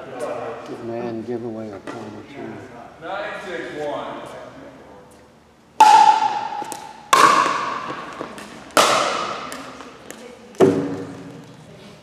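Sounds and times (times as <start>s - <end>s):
paddles hitting plastic ball: 5.8s - 11.6s.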